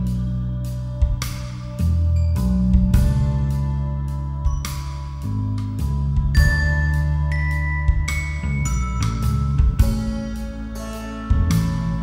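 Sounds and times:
low bass notes: 0:00.0 - 0:12.0
percussion hits: 0:04.5 - 0:12.0.

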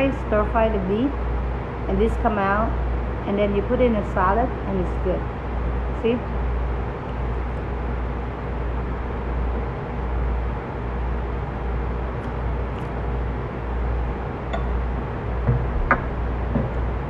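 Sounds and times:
low room rumble: 0:00.0 - 0:17.0.

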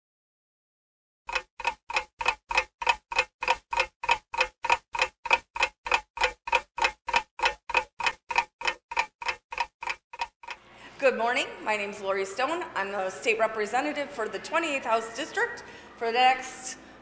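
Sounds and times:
clock ticking: 0:01.3 - 0:10.6.

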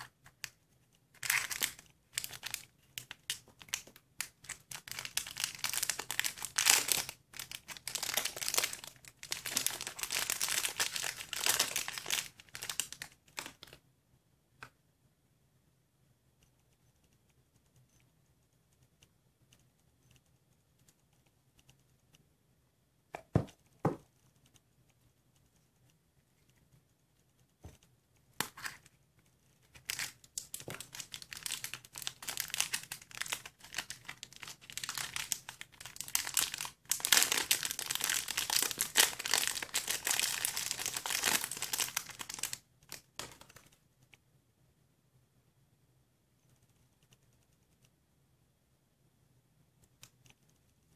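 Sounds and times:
plastic wrapper crinkling and tearing: 0:01.2 - 0:13.8, 0:29.7 - 0:43.6.

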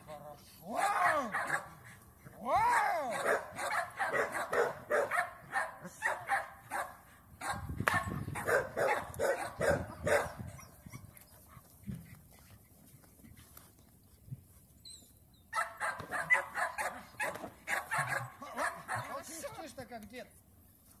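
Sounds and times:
dog barking and growling: 0:00.8 - 0:01.9, 0:02.8 - 0:10.4, 0:15.6 - 0:19.4.

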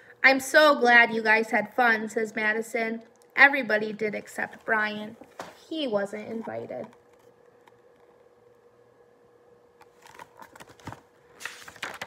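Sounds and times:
faint hum: 0:00.0 - 0:12.0
paper rustling: 0:09.9 - 0:12.0.

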